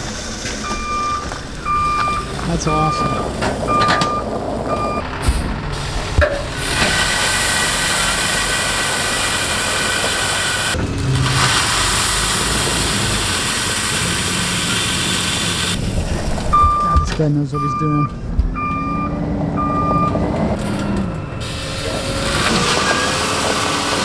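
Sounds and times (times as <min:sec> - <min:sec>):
truck engine running: 0:00.0 - 0:24.0
reversing beep: 0:00.6 - 0:05.1, 0:16.5 - 0:23.4.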